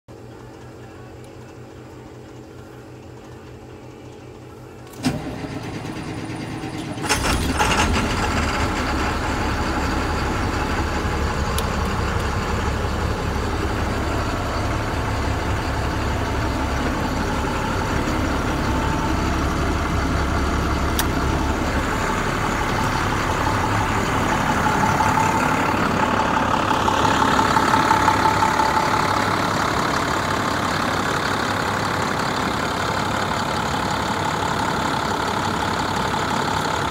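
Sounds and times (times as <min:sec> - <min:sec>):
diesel engine idling: 0:00.1 - 0:36.9
starter motor cranking: 0:04.8 - 0:23.6.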